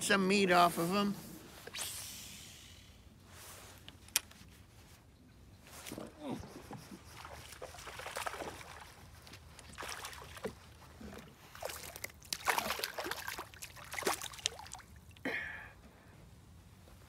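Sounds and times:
fish splashing in water: 7.2 - 9.0, 11.5 - 15.0.

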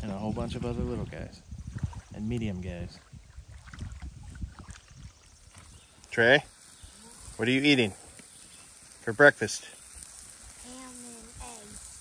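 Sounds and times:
water sloshing against boat hull: 1.6 - 5.7.

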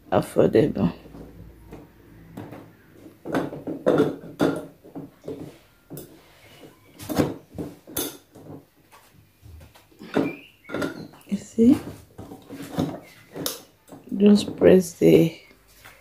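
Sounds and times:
high chair parts knocking and clicking: 1.0 - 8.7, 10.0 - 14.8.

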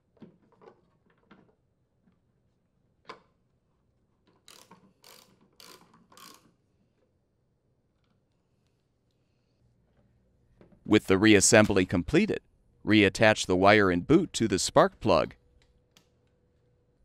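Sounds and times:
ratchet wrench clicking: 4.5 - 6.5.

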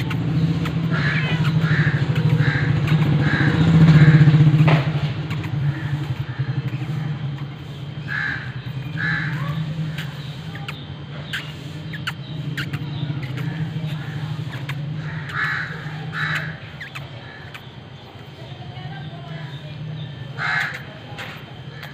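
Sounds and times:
engine idling: 0.0 - 21.9
crow cawing: 0.3 - 4.7, 8.0 - 9.6, 15.0 - 17.4, 20.4 - 21.0.

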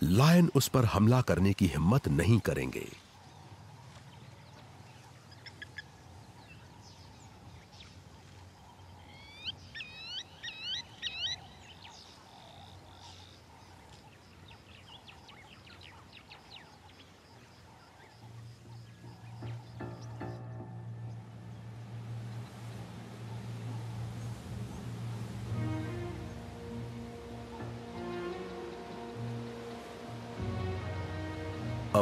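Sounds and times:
birds chirping and calling: 3.0 - 32.0
low steady hum: 18.4 - 32.0.

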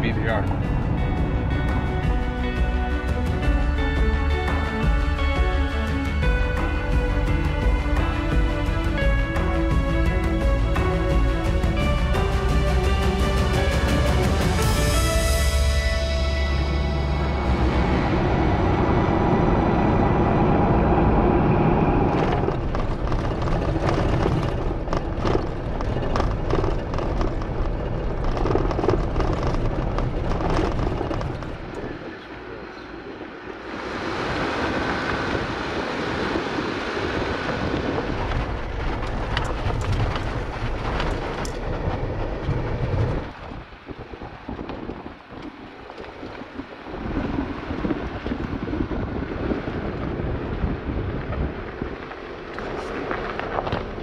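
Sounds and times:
road tyre and wind noise: 0.0 - 54.0
rattles: 22.1 - 32.0.

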